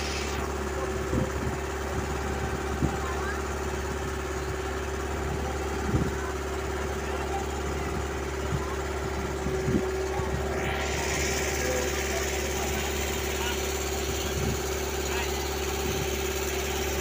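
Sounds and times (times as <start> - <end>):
hiss: 0.0 - 0.4
boat engine running: 0.0 - 17.0.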